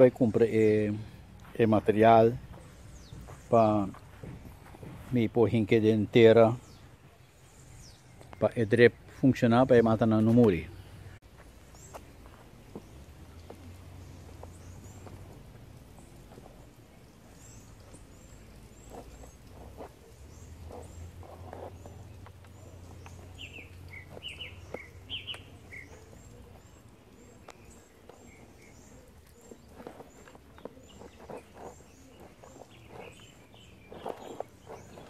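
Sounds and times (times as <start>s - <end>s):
small birds chirping: 0.0s - 35.0s
light knocks and rustles: 2.4s - 5.8s.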